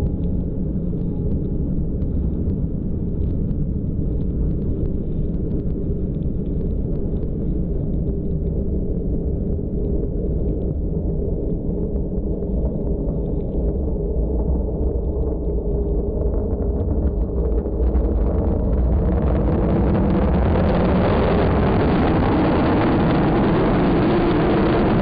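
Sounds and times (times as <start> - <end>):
fighter jet engine rumbling: 15.2 - 25.0.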